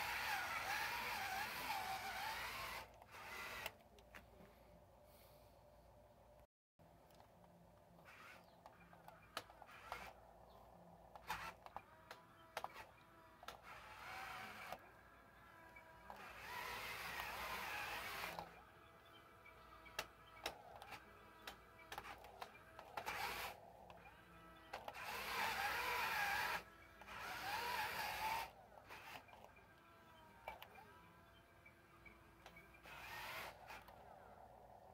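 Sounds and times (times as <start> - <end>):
toy electric motor whirring: 0.0 - 4.0, 7.9 - 34.9
small clicks: 11.1 - 14.9, 19.4 - 31.0.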